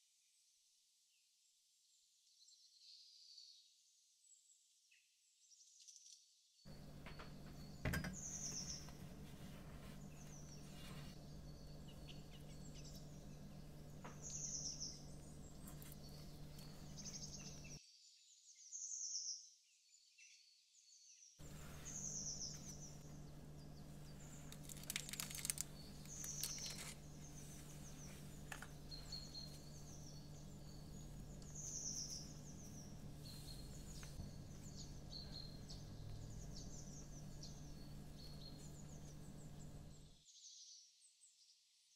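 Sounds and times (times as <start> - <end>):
birds chirping: 6.7 - 17.8, 21.4 - 40.2
steady low hum: 6.7 - 17.8, 21.4 - 40.2.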